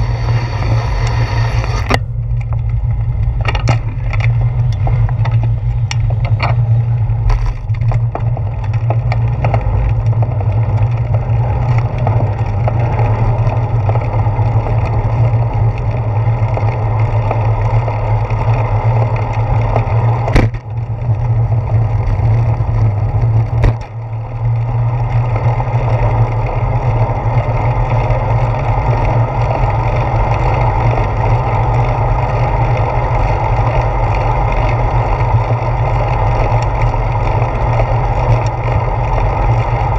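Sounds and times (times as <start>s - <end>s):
wind and road rumble: 0.0s - 39.9s
rattling clicks of handlebar mount: 1.8s - 10.2s
sharp knocks: 20.3s - 20.6s.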